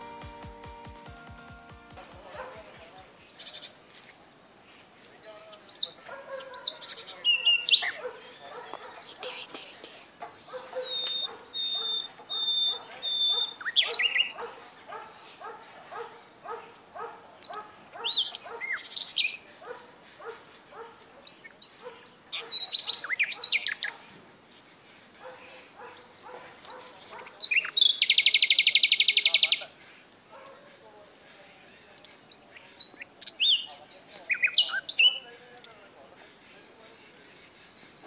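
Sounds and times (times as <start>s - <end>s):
birds calling and singing: 1.9s - 38.0s
bird trill: 5.5s - 24.0s, 25.2s - 29.6s, 32.6s - 35.2s.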